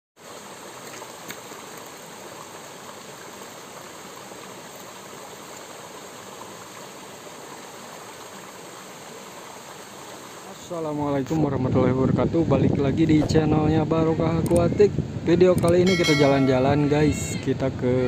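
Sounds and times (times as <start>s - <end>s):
stream pouring over a cascade: 0.2s - 11.0s.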